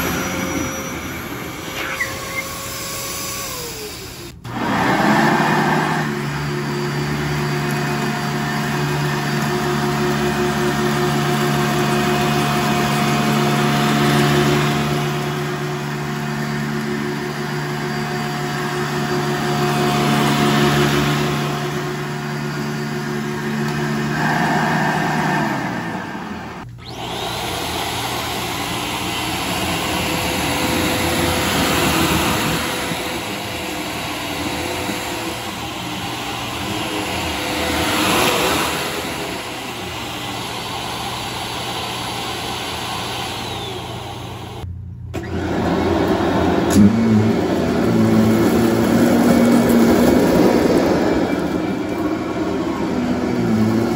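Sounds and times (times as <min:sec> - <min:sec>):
vacuum cleaner motor hum: 0:00.0 - 0:53.9
vacuum suction rushing: 0:18.9 - 0:44.1.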